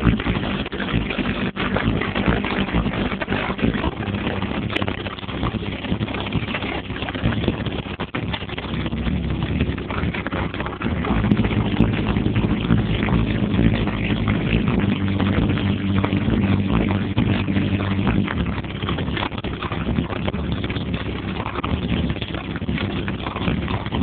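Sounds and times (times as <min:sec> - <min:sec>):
bass-heavy electronic music distorted: 0:00.0 - 0:24.0.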